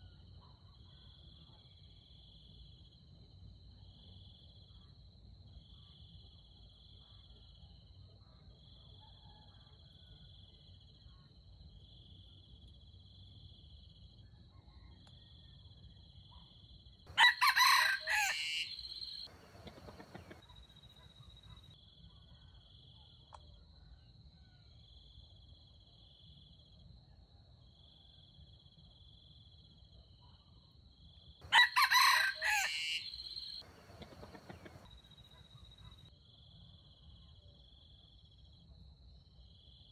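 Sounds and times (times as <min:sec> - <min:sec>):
rooster crowing: 0:17.1 - 0:20.4, 0:31.4 - 0:35.0
insects chirring: 0:17.1 - 0:21.6, 0:31.4 - 0:36.0.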